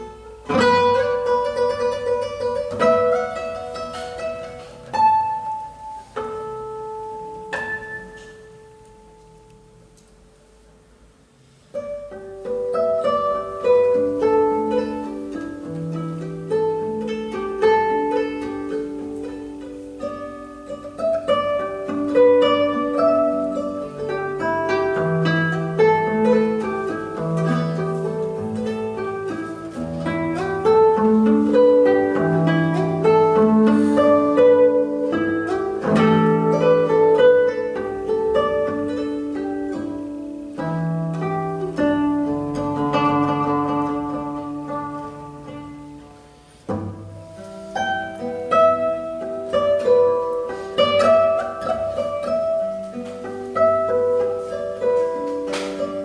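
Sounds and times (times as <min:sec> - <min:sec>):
fingerpicked nylon-string guitar: 0:00.0 - 0:10.8, 0:11.4 - 0:56.0.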